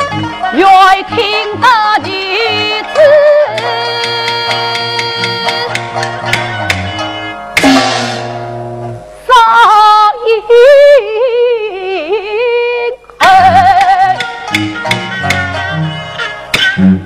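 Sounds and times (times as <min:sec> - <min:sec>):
traditional ensemble instruments: 0:00.0 - 0:09.3, 0:13.1 - 0:17.0
woman singing with vibrato: 0:00.5 - 0:05.8, 0:09.2 - 0:14.5
percussion crash: 0:07.6 - 0:08.8.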